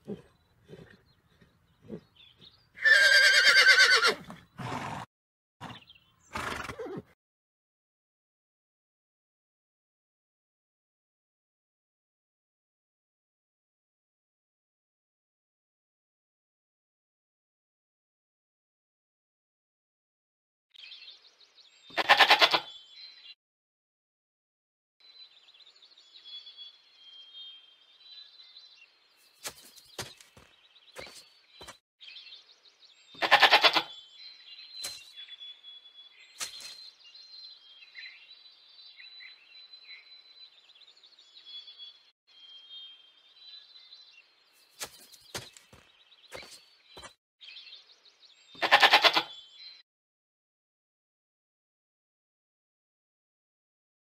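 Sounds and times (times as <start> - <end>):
goat bleat: 21.9 - 22.7, 33.2 - 33.9, 48.6 - 49.3
high bird chirps: 33.1 - 40.3, 41.2 - 47.9.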